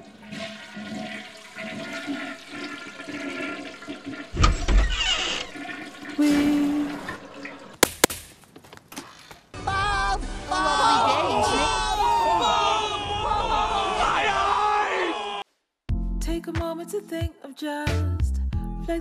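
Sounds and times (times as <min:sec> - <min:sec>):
toilets flushing: 0:00.0 - 0:07.8.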